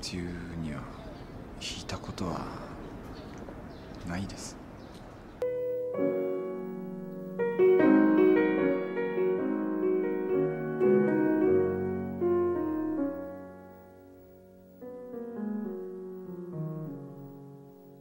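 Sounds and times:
slow gentle piano piece: 0:05.4 - 0:18.0.

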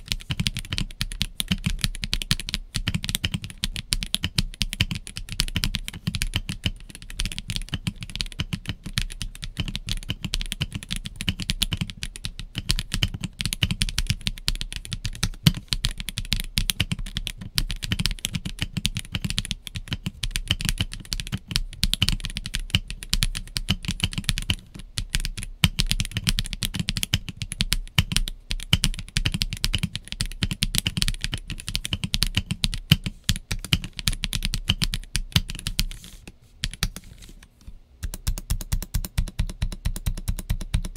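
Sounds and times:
fast typing on mechanical keyboard: 0:00.0 - 0:37.1, 0:38.0 - 0:40.9.

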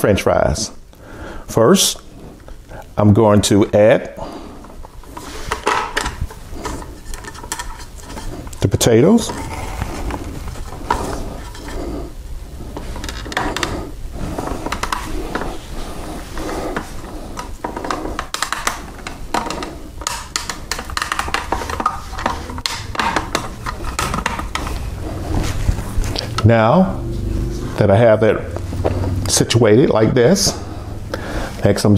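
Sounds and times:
plastic clicks and knocks: 0:16.8 - 0:24.8.

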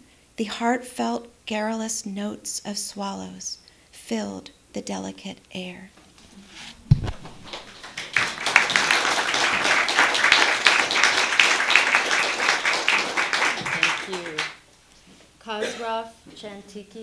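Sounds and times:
low thump: 0:06.8 - 0:07.4
audience applauding: 0:07.0 - 0:14.6.

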